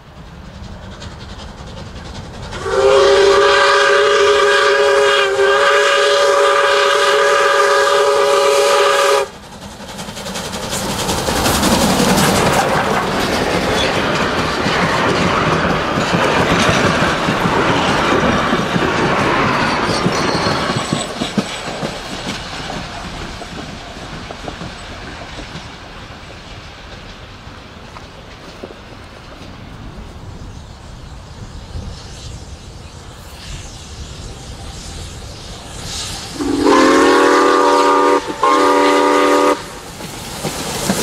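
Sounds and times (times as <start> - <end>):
train wheels clattering over rails: 0.0 - 32.0, 34.3 - 41.0
steam locomotive chime whistle: 2.6 - 9.4, 19.5 - 21.2, 36.0 - 39.8.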